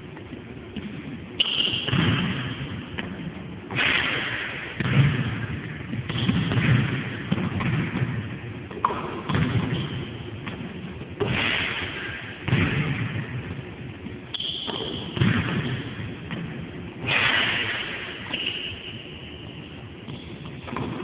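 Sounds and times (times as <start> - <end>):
basketball thudding on gym floor: 0.8 - 18.0.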